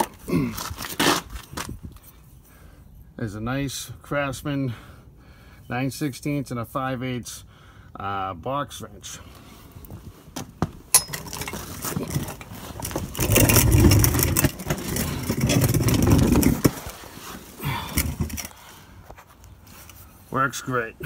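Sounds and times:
scraping and rustling: 0:11.1 - 0:20.3
microphone rubbing and knocks: 0:12.0 - 0:16.9.

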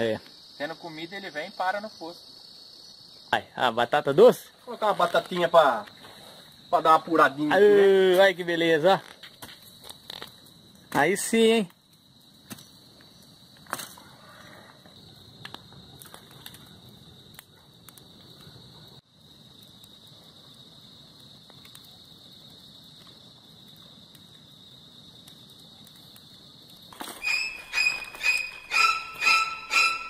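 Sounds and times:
high-pitched hiss: 0:00.0 - 0:15.2
campfire crackling and popping: 0:01.4 - 0:28.6.

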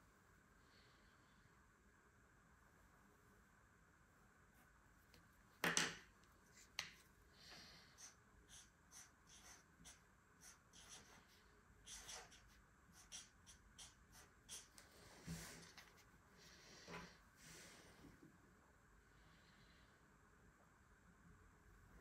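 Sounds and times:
marker pen scratching on paper: 0:07.9 - 0:16.1.

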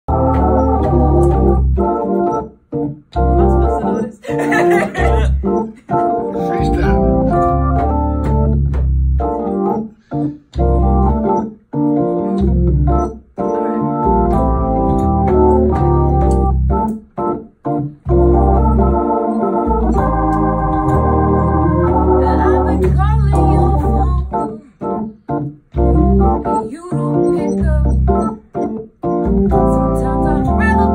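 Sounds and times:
deep bass line: 0:00.0 - 0:02.4, 0:03.2 - 0:03.9, 0:04.9 - 0:05.6, 0:06.2 - 0:09.8, 0:10.6 - 0:11.4, 0:12.2 - 0:13.2, 0:13.8 - 0:16.9, 0:18.1 - 0:24.4, 0:25.8 - 0:28.3, 0:29.1 - 0:30.9
organ playing sustained chords: 0:00.1 - 0:25.0, 0:25.8 - 0:30.9.

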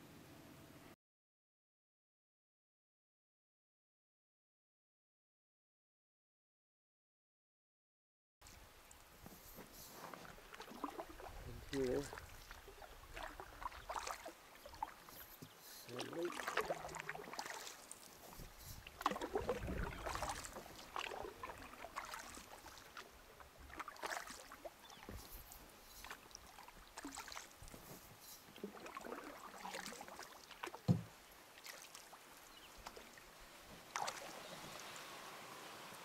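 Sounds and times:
paddle splashing and dripping: 0:08.4 - 0:36.0
dull knock: 0:30.9 - 0:31.1.

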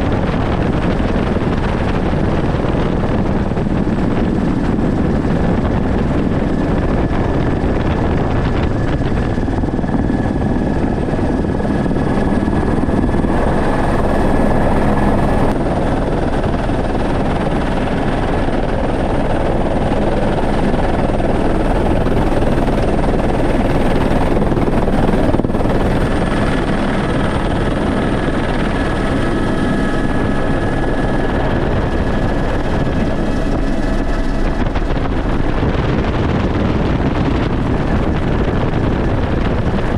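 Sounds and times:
helicopter rotor and engine rush: 0:00.0 - 0:39.9.

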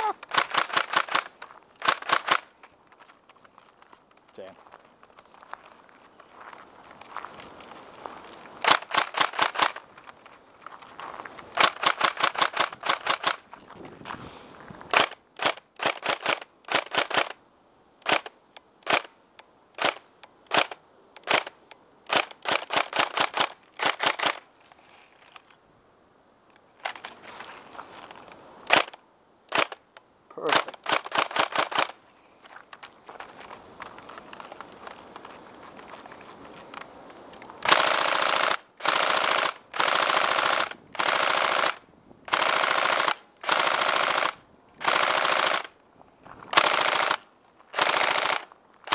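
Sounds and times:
airsoft rifle firing: 0:00.0 - 0:02.5.

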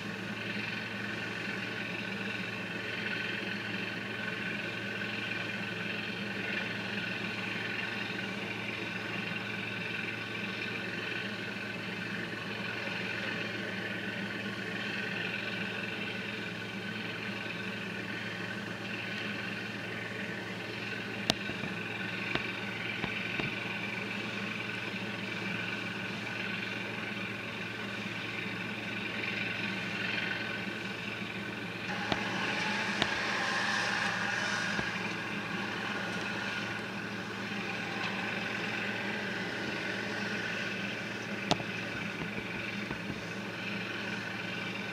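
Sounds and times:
engine hum: 0:00.0 - 0:44.9.

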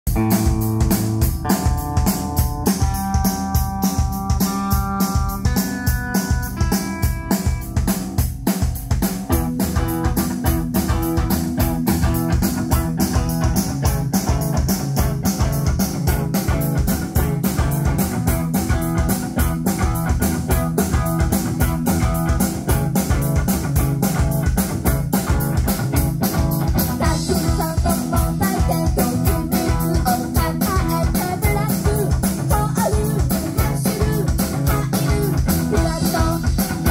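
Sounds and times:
drum kit fast beat: 0:00.0 - 0:36.9
electric guitar: 0:00.1 - 0:36.9.

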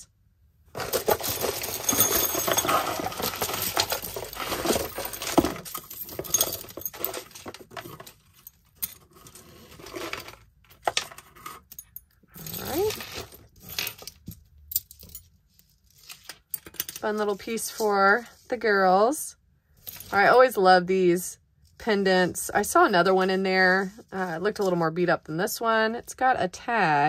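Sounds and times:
jewelry clinking and jangling: 0:00.7 - 0:18.2, 0:19.7 - 0:20.5.

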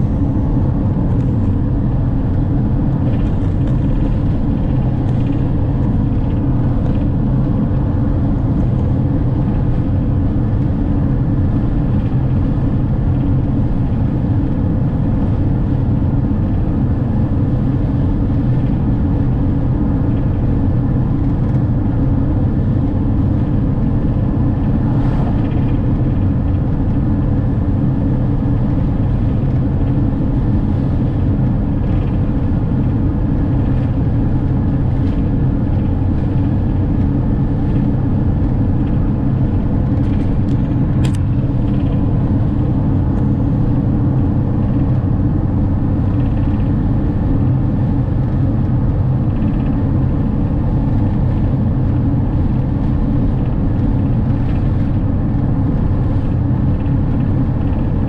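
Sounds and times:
van engine cruising: 0:00.0 - 0:58.0
tyre noise on road: 0:22.2 - 0:44.9.

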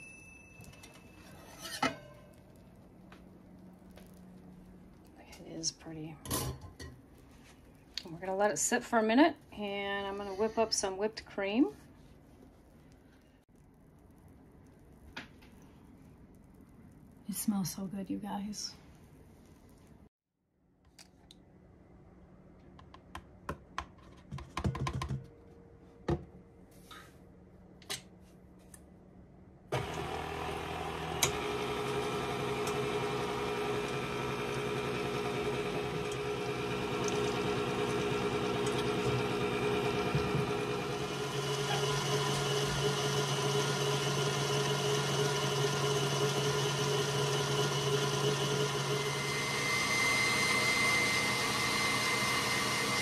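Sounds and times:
stand mixer whisking cream: 0:29.8 - 0:53.0.

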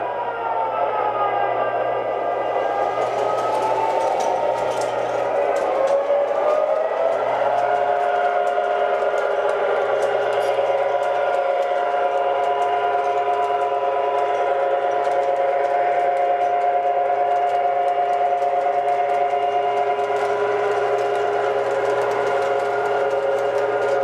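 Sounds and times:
wheels clicking over track: 0:02.3 - 0:24.0
model train motor whine: 0:02.5 - 0:24.0.

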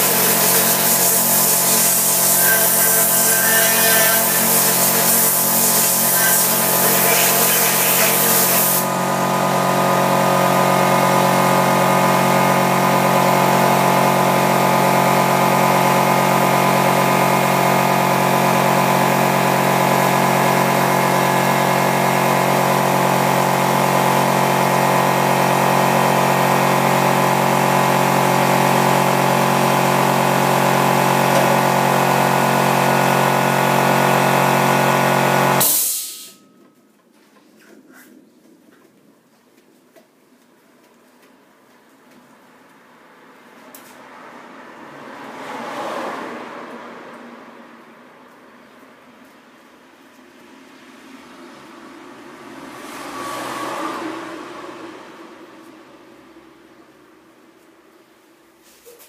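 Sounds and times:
air compressor motor running: 0:00.0 - 0:36.4
air hissing from gun: 0:35.6 - 0:36.4.

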